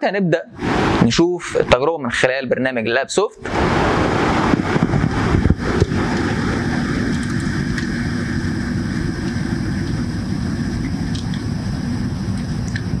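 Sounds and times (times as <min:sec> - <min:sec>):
equipment humming with hiss: 0:03.4 - 0:13.0.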